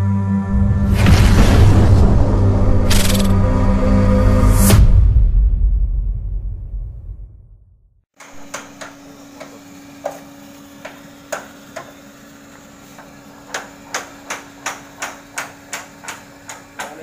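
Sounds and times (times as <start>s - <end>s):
electric blower humming: 8.2s - 17.0s.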